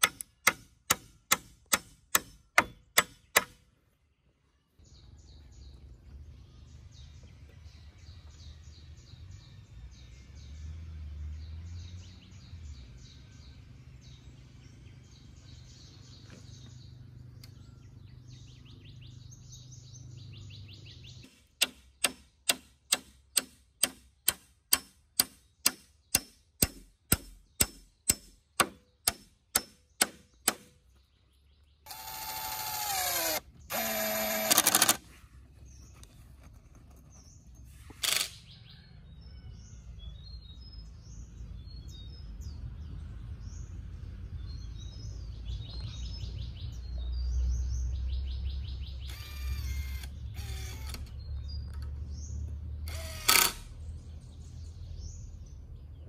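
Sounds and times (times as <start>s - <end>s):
hammer striking nail: 0.0s - 3.6s, 21.6s - 30.8s
birds chirping: 0.0s - 56.0s
cordless drill driving screw: 31.9s - 35.1s, 49.1s - 51.1s, 52.9s - 53.7s.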